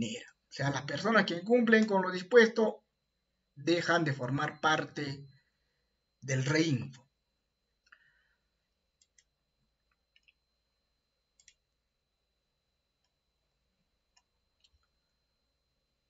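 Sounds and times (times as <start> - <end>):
computer mouse clicks: 9.0 - 10.4, 11.4 - 11.6, 14.1 - 15.0.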